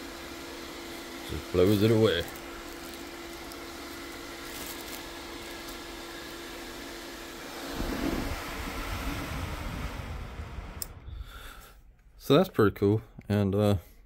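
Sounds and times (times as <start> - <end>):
fan whirring with hum: 0.0 - 12.5
low handling rumble: 7.7 - 11.6.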